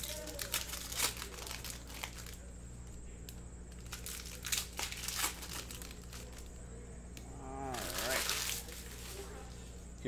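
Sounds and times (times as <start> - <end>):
low steady hum: 0.0 - 10.0
person murmuring wordlessly: 7.2 - 8.4.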